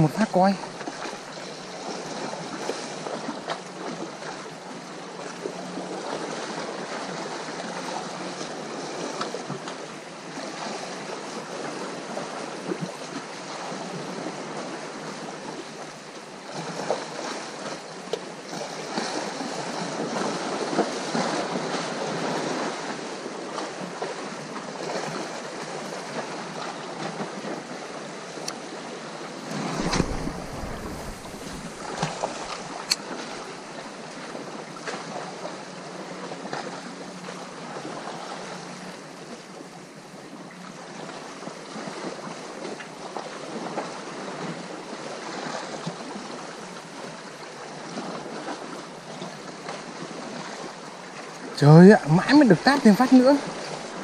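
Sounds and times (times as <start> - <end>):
sea waves washing on shore: 0.0 - 54.0
wind buffeting microphone: 29.4 - 33.0.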